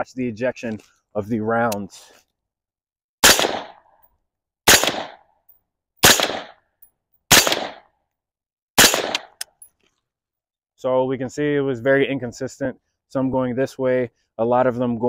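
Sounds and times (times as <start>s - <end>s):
suppressed rifle shots: 3.2s - 3.8s, 4.7s - 5.2s, 6.0s - 6.6s, 7.3s - 7.9s, 8.8s - 9.4s.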